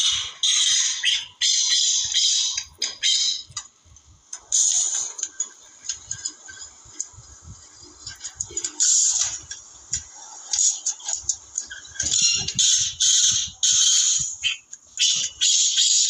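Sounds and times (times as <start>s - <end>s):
bird calling harshly: 0.0s - 3.6s, 12.1s - 16.0s.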